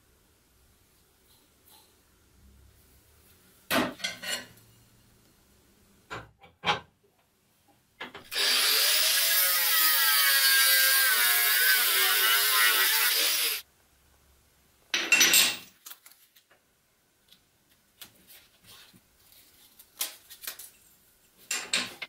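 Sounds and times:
angle grinder cutting metal: 8.3s - 13.6s
knocks and clanks in vise: 21.5s - 22.0s.

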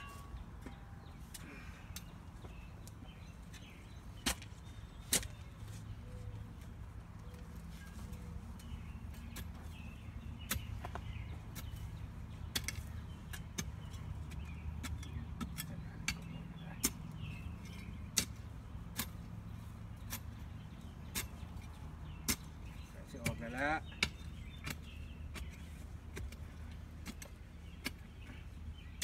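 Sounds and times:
digging tool striking soil: 3.5s - 5.5s, 8.6s - 29.0s.

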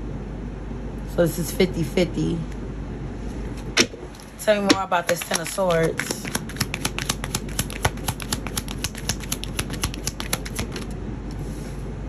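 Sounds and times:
cards being shuffled: 4.2s - 10.9s.

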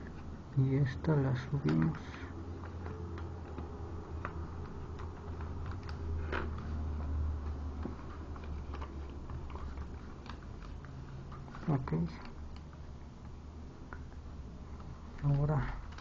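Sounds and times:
paper rustling and creasing: 0.0s - 12.8s.

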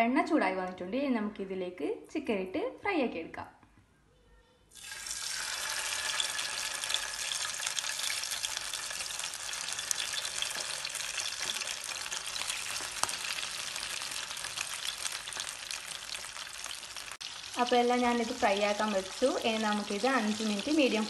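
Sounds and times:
chicken sizzling in hot oil: 4.7s - 21.0s.

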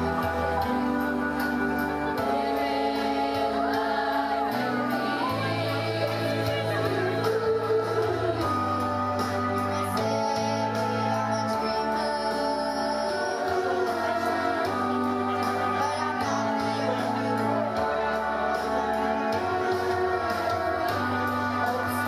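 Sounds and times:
slow backing track: 0.0s - 22.0s
youth choir singing: 0.0s - 22.0s.

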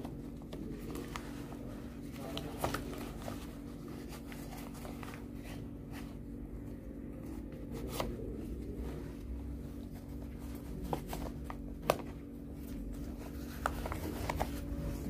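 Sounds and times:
steady low hum: 0.0s - 15.0s
plastic rain suit rustling: 7.8s - 15.0s.

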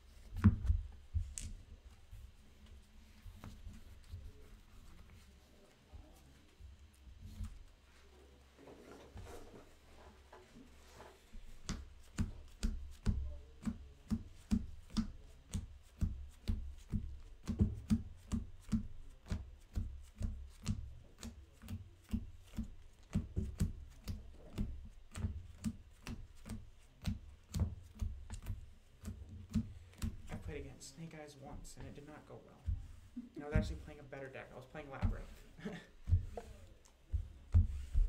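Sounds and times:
playing cards shuffled by hand: 1.2s - 1.6s.

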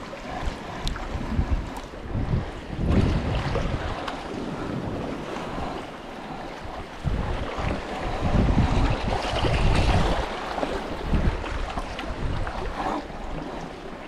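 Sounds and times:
lapping sea water: 0.0s - 14.0s
wind gusting on microphone: 0.0s - 14.0s.

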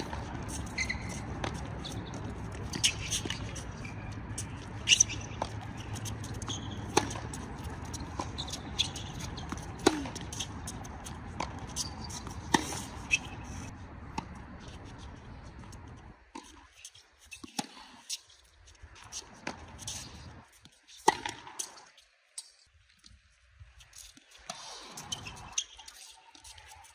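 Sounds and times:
tennis ball struck by racquets: 0.0s - 13.3s, 21.1s - 21.5s
tennis ball bouncing: 0.0s - 13.4s, 14.1s - 14.6s, 21.0s - 21.6s.

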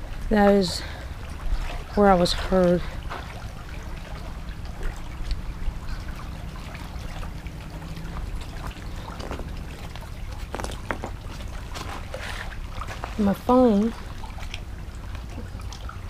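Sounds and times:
small waves lapping on rocks: 0.0s - 16.0s
wind rumbling on microphone: 3.0s - 13.2s
footsteps on loose gravel: 9.0s - 12.1s.

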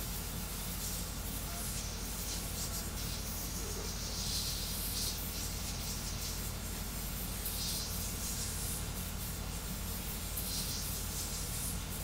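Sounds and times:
fan hiss: 0.0s - 12.0s
high-pitched hiss: 0.0s - 12.0s.

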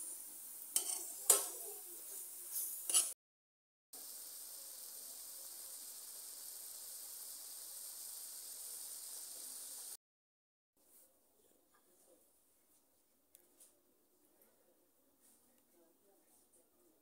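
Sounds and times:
egg sizzling in a frying pan: 0.0s - 3.2s, 4.0s - 10.0s.

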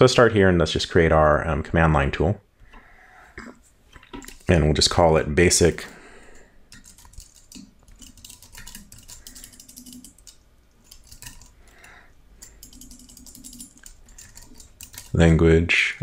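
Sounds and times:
keyboard keys clicking: 6.7s - 11.6s, 12.4s - 15.3s.

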